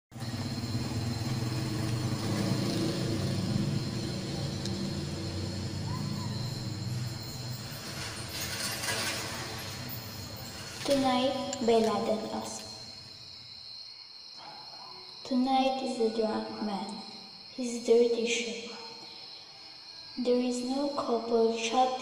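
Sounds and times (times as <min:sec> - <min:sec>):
motor vehicle rumble: 0:00.1 - 0:13.4
street ambience: 0:00.1 - 0:13.7.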